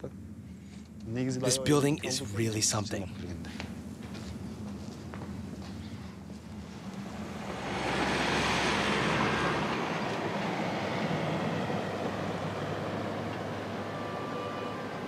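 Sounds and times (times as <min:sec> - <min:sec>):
van driving past: 0:03.4 - 0:15.0.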